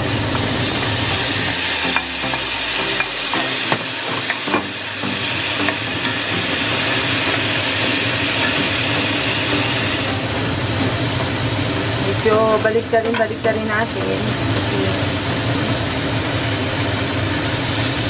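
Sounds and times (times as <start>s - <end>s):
shrimp sizzling in butter: 0.0s - 18.0s
spatula knocking and scraping pan: 0.3s - 9.0s.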